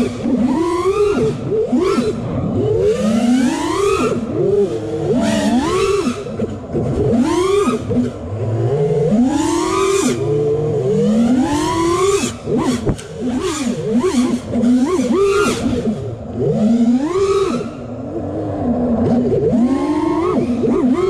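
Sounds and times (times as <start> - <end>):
quadcopter motors whining: 0.0 - 21.0.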